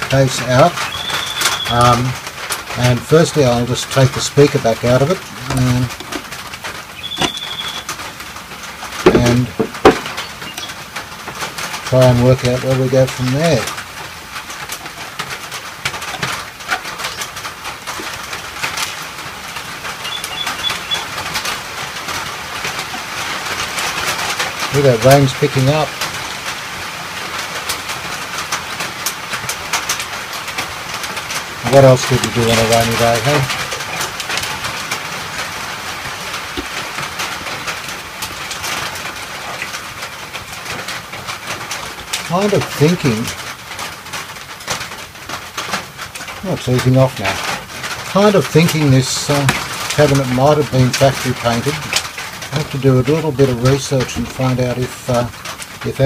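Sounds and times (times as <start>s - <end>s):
rain on a roof: 0.0s - 56.0s
high chirps: 0.8s - 1.7s, 6.9s - 8.0s, 20.0s - 21.2s
sharp clicks and taps: 9.1s - 10.7s.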